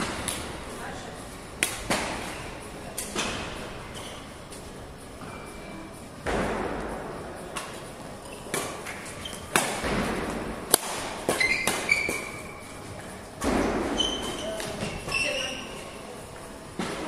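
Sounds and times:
racket striking shuttlecock: 1.6 - 2.3, 8.5 - 12.4
shoe squeaks: 3.8 - 4.4, 8.2 - 9.6, 11.3 - 12.7, 13.9 - 16.0.

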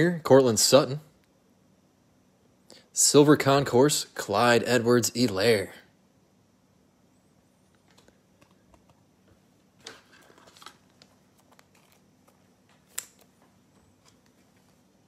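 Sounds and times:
faint room hum: 0.0 - 15.0
cards rustling and tapping: 9.8 - 14.5.

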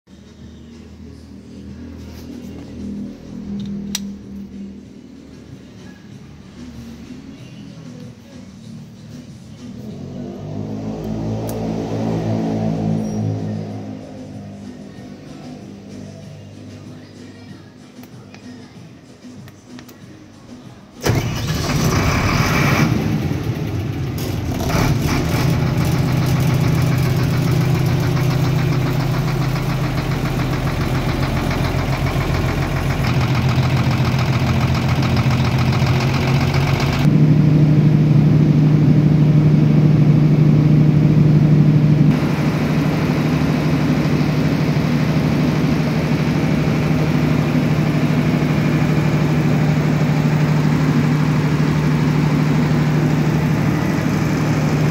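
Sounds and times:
diesel generator running hum: 0.2 - 17.3, 21.0 - 54.9
diesel generator cranking and starting: 21.0 - 54.9.

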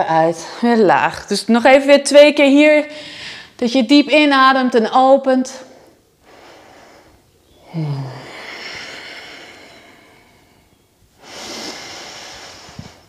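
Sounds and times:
woman inhaling deeply: 5.7 - 13.0
woman exhaling with a sigh: 7.6 - 13.0.

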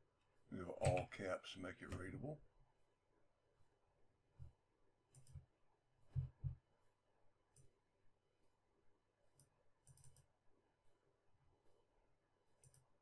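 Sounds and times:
computer mouse clicks: 5.1 - 5.5, 9.4 - 10.3, 12.6 - 12.9.

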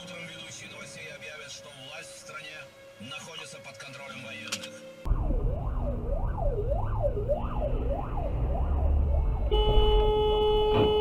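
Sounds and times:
engine and road rumble: 0.0 - 11.0
fire engine siren wailing: 0.0 - 11.0
long vehicle horn blast: 9.5 - 11.0.

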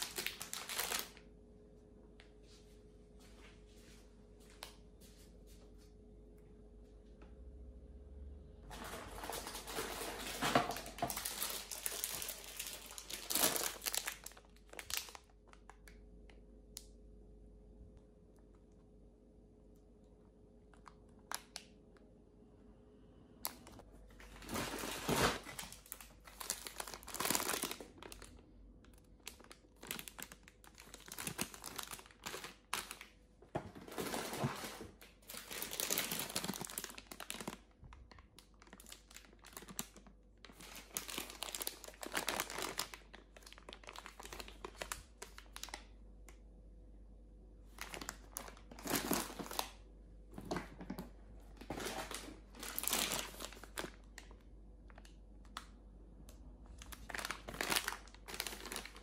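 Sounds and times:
plastic packets crinkling: 0.0 - 1.3, 8.7 - 16.0, 23.4 - 46.0, 47.7 - 49.8, 50.4 - 55.7, 56.8 - 59.0.

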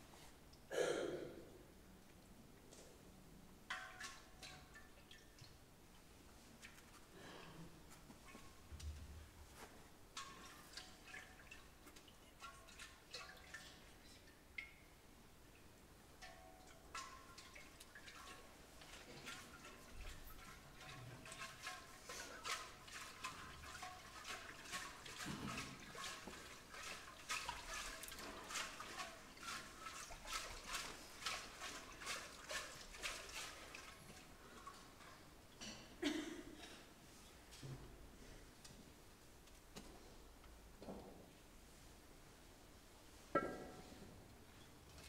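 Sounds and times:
faint drip-like plinks: 3.6 - 9.2, 10.1 - 36.7, 43.1 - 45.0.

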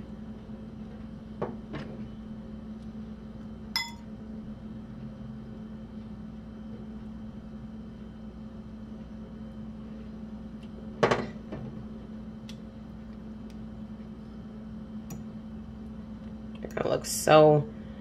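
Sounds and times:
low electrical hum: 0.0 - 18.0
fork clinking on cookware: 3.8 - 4.0.

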